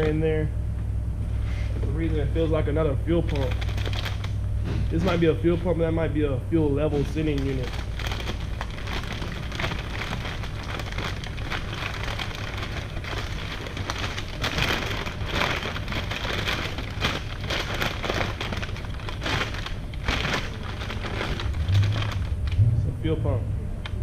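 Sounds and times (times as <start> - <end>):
steady low hum: 0.0 - 24.0
packaging crinkling and rustling: 2.4 - 5.6, 6.8 - 22.6.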